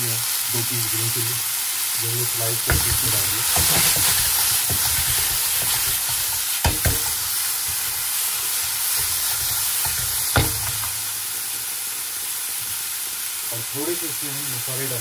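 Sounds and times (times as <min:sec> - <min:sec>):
vegetables sizzling in oil: 0:00.0 - 0:15.0
spatula knocking against pan: 0:02.7 - 0:07.8, 0:09.0 - 0:10.9.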